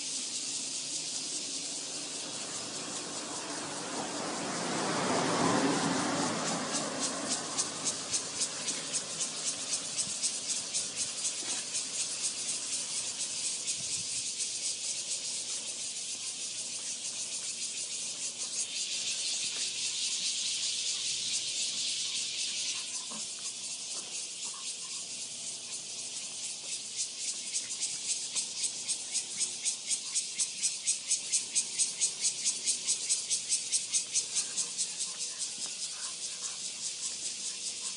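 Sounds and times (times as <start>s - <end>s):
insects pulsing buzz: 0.0s - 37.9s
steady high insect buzz: 0.0s - 37.9s.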